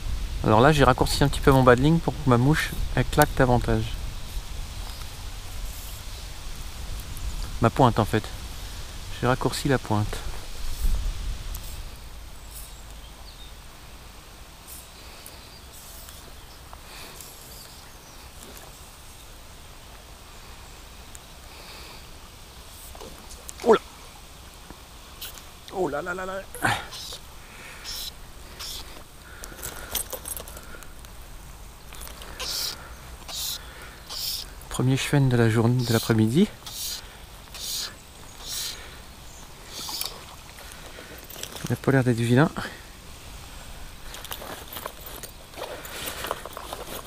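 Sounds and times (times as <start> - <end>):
wind buffeting microphone: 0.0 - 12.5
short hissing noises: 3.9 - 9.1, 10.1 - 12.9, 13.8 - 19.2, 20.3 - 24.2, 24.8 - 41.4
short high hisses: 26.6 - 29.0, 32.2 - 34.6, 35.8 - 40.3.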